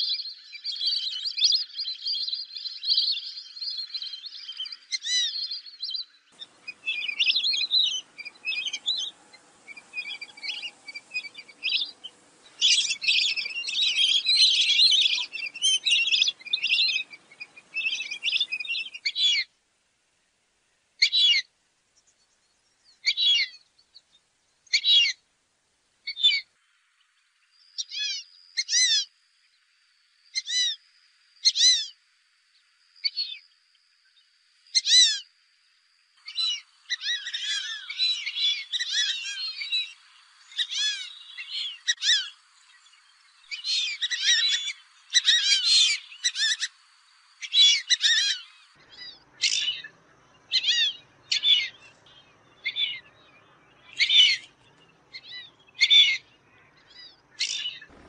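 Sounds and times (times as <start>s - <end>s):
ducks whistling calls: 6.4s - 19.4s, 36.2s - 53.1s, 53.8s - 58.0s.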